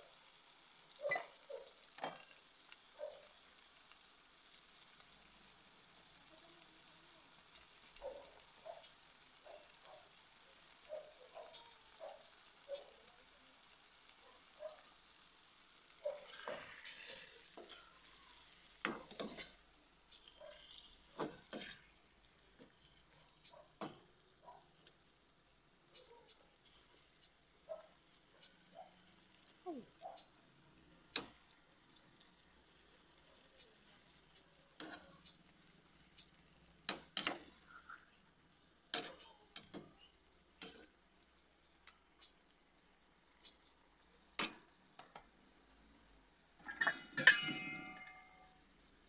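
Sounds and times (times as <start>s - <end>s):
squid sizzling in a pan: 0.0s - 49.0s
metal turner clinking on pan: 1.0s - 3.2s, 15.5s - 24.1s, 31.0s - 42.4s, 44.3s - 45.3s, 46.6s - 48.6s
metal spoon scraping frying pan: 16.0s - 24.0s, 46.6s - 48.5s
sharp metal clanks: 46.7s - 48.4s.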